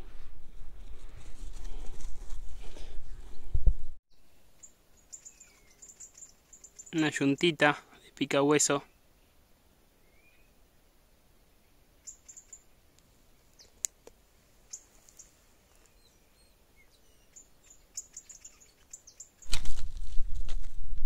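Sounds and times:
small birds chirping: 4.1s - 9.4s, 10.0s - 10.6s, 11.4s - 13.9s, 14.6s - 19.5s.

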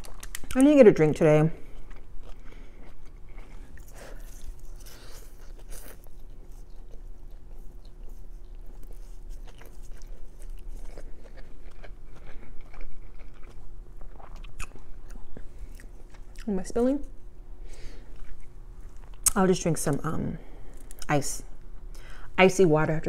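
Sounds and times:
chewing and slurping noodles: 1.6s - 16.4s.

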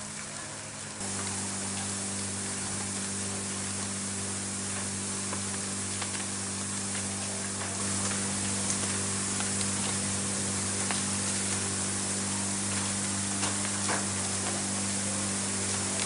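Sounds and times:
fire hose water jet hissing: 0.0s - 16.0s.

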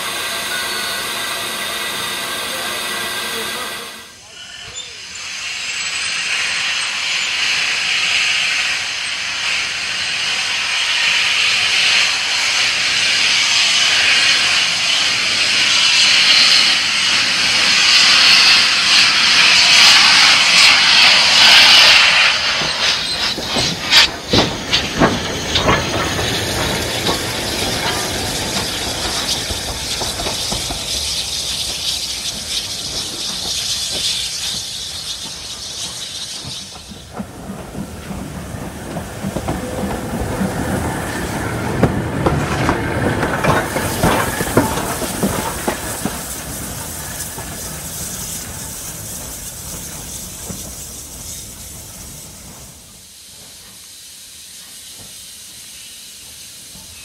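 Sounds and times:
locomotive exhaust chuffs: 0.0s - 57.0s
steam locomotive hissing: 0.0s - 57.0s.

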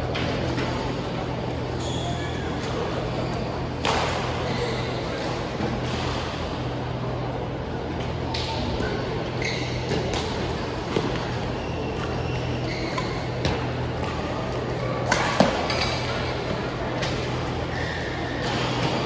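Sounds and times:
shoes squeaking on court: 9.2s - 14.8s.

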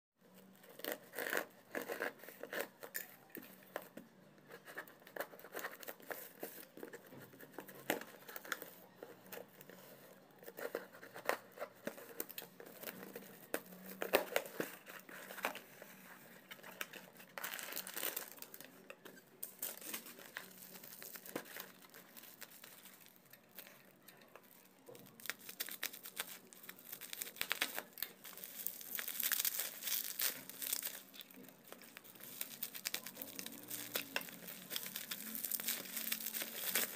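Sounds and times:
bubble wrap rustling: 0.2s - 36.9s
plastic wrap crinkling: 0.3s - 36.9s
packing tape ripping: 24.4s - 36.9s.

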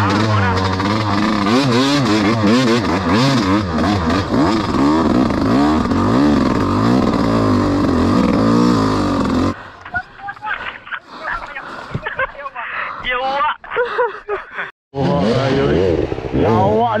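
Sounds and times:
dirt bike engine revving: 0.0s - 9.6s, 15.0s - 17.0s.

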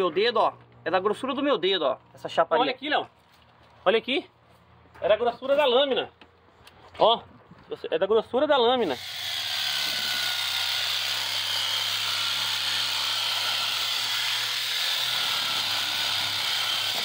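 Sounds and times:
reciprocating saw cutting steel: 8.8s - 17.0s.

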